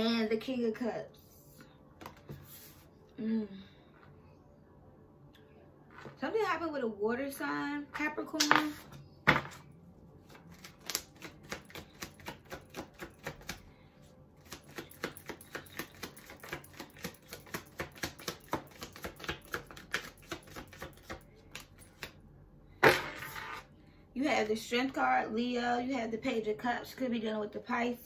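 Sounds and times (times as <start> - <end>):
cards being shuffled: 10.2 - 13.6, 14.4 - 22.2.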